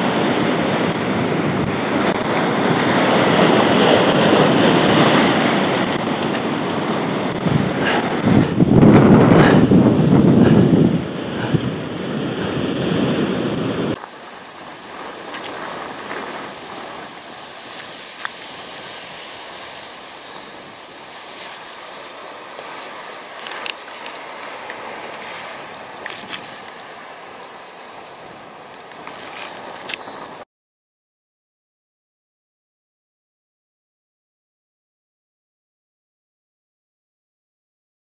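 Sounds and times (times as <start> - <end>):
wind buffeting microphone: 0.0 - 30.4
surf breaking on rocks: 13.9 - 30.4.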